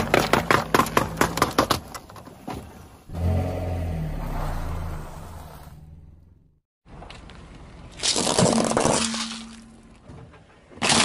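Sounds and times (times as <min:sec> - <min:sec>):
cans crunching under car tyre: 0:08.0 - 0:09.7, 0:10.7 - 0:11.0.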